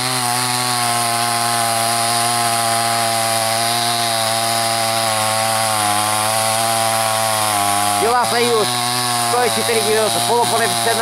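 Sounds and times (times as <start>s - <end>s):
chainsaw cutting log: 0.0s - 11.0s.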